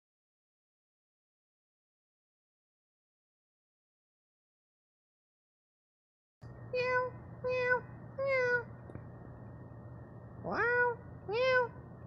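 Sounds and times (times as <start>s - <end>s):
cat meowing: 6.8s - 8.7s, 10.4s - 11.8s.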